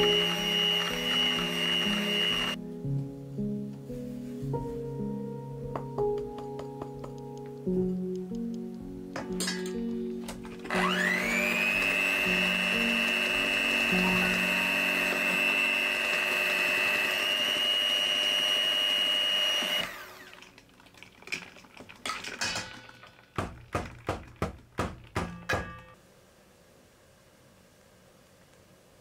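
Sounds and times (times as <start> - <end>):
electric hand mixer whine: 0.0 - 2.6, 10.5 - 20.6
light sharp knocks and taps: 5.7 - 8.3.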